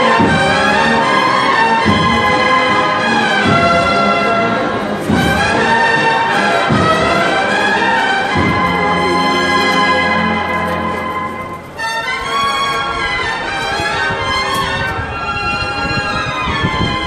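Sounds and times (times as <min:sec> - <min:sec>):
cornet band playing march: 0:00.0 - 0:15.9
deep drum beat: 0:01.8 - 0:11.7.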